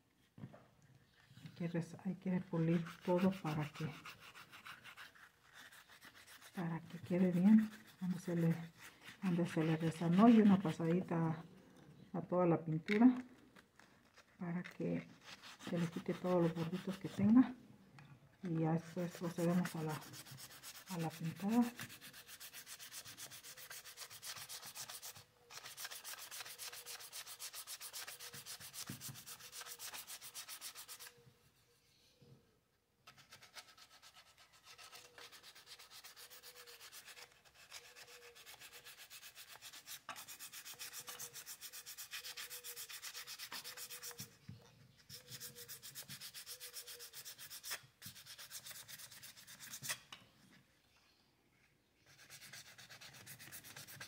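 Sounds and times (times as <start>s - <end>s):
sanding wood in rubbing strokes: 2.4s - 10.9s, 15.2s - 17.4s, 18.8s - 31.1s, 33.1s - 44.4s, 45.1s - 50.0s, 52.1s - 54.0s.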